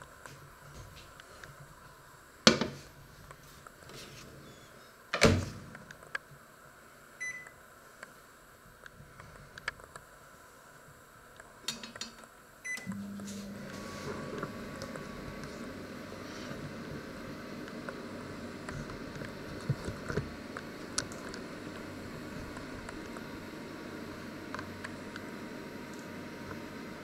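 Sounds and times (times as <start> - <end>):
microwave oven humming: 6.5 - 8.4, 12.4 - 27.0
keypad beeps: 7.2 - 7.5, 12.7 - 13.0.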